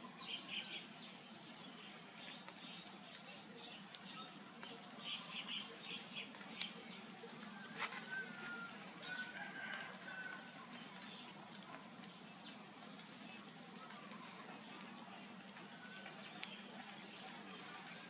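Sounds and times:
high insect drone: 0:00.0 - 0:18.0
distant rooster calling: 0:07.5 - 0:10.7.

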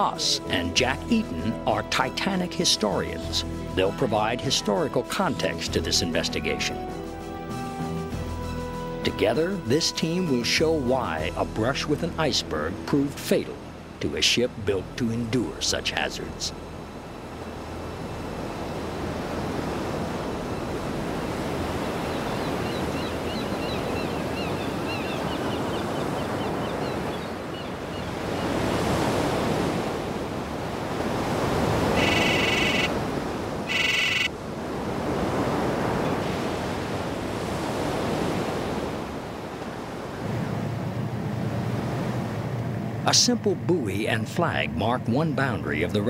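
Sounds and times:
sea waves washing: 0:00.0 - 0:08.2, 0:09.1 - 0:46.0
wind: 0:00.0 - 0:46.0
short high-pitched calls: 0:32.0 - 0:32.9, 0:33.7 - 0:34.3.

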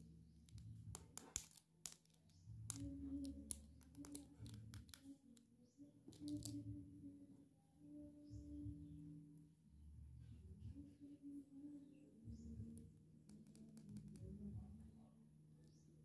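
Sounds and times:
plastic pieces clicking and tapping: 0:00.4 - 0:05.5, 0:06.1 - 0:06.6.

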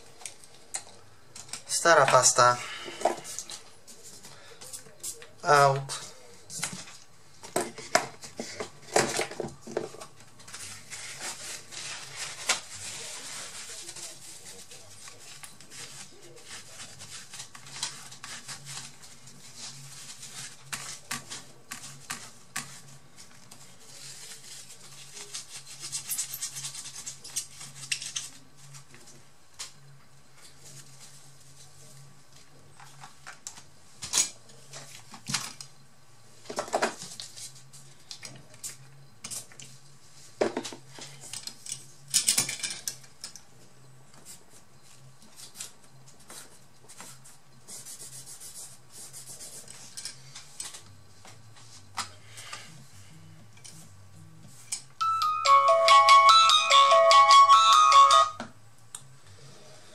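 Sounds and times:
tissue rubbing over chips: 0:10.5 - 0:22.0.

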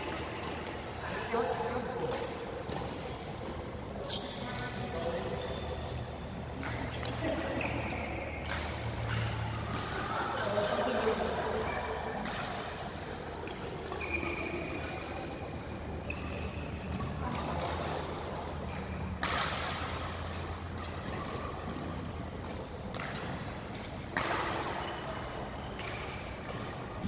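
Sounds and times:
shoe squeaks on court floor: 0:01.3 - 0:02.5, 0:04.0 - 0:06.8, 0:07.4 - 0:09.2, 0:09.8 - 0:10.4, 0:11.3 - 0:11.9, 0:13.9 - 0:17.4
racket striking shuttlecock: 0:08.0 - 0:10.0, 0:19.2 - 0:26.8.

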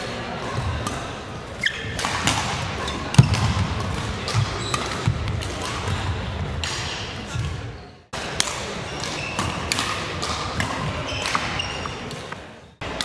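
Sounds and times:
rackets striking shuttlecock: 0:00.8 - 0:07.6, 0:08.3 - 0:13.0
shoe squeak: 0:01.6 - 0:02.0, 0:04.5 - 0:05.0, 0:08.9 - 0:09.6, 0:11.0 - 0:12.2.

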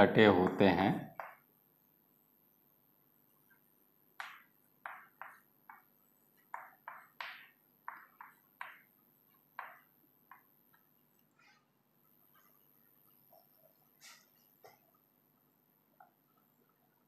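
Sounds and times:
chalk writing on a chalkboard: 0:04.2 - 0:08.8, 0:14.0 - 0:14.5.

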